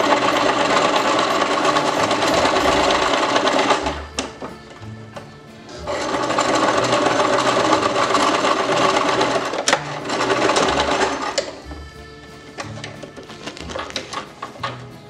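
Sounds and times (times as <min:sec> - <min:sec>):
sewing machine running: 0:00.0 - 0:04.8, 0:05.7 - 0:11.8.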